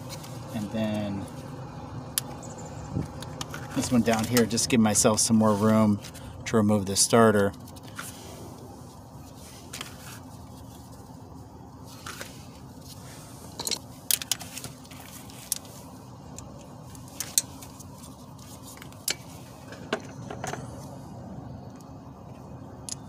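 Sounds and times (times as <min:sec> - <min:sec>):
steady low hum: 0:00.0 - 0:23.0
metal wrench clinking: 0:13.5 - 0:14.4.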